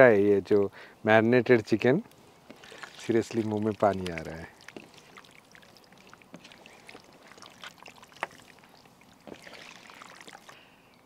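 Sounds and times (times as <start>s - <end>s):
wet squelches of marinated chicken: 2.1s - 10.6s.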